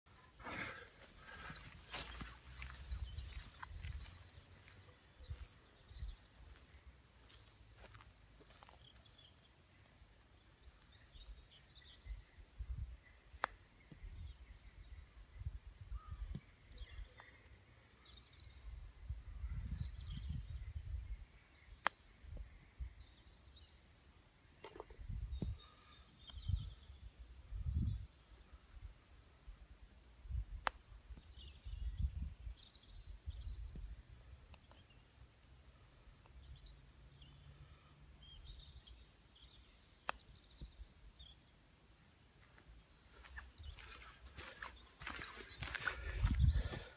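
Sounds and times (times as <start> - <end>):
birds chirping faintly: 0.1 - 46.9
faint bird chirps: 10.5 - 28.8
wind rumble on microphone: 12.0 - 13.0, 18.6 - 21.3, 25.0 - 25.7, 26.3 - 28.2, 31.2 - 34.0, 45.6 - 46.9.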